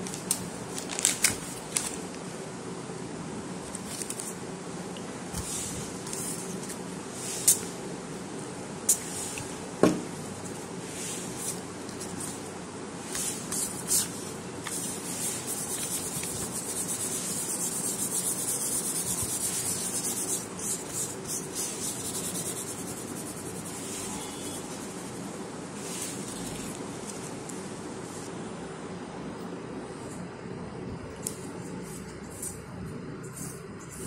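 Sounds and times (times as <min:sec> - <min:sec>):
paper and glue stick handling: 0:13.1 - 0:23.8.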